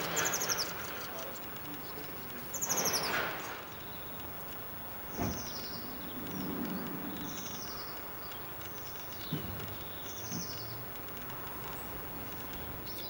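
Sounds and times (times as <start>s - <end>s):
songbird twittering: 0.0s - 4.3s, 5.0s - 10.9s, 11.7s - 13.0s.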